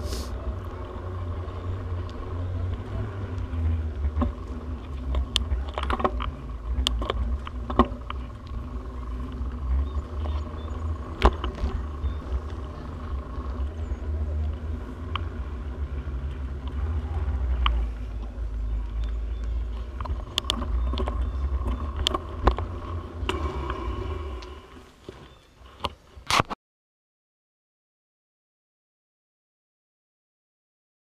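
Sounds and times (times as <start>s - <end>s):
bicycle rolling over pavement: 0.0s - 26.2s
bike clicks and rattles: 0.4s - 23.9s.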